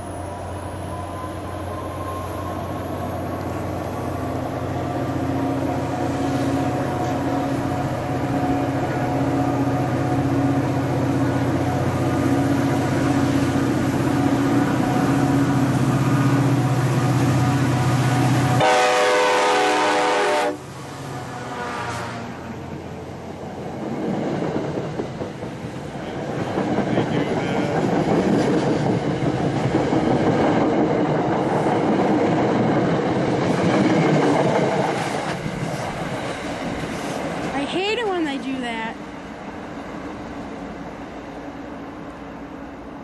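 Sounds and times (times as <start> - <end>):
diesel locomotive engine drone: 0.0 - 43.0
loud train horn blast: 16.5 - 22.4.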